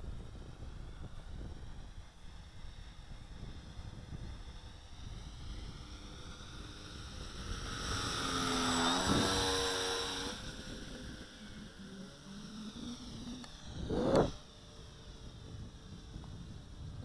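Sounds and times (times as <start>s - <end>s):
model plane propellers buzzing: 0.0s - 17.0s
wind rumble on microphone: 0.0s - 17.0s.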